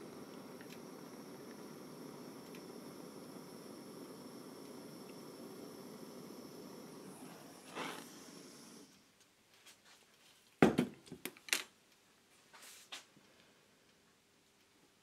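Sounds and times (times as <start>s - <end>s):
blowtorch hissing: 0.0s - 9.0s.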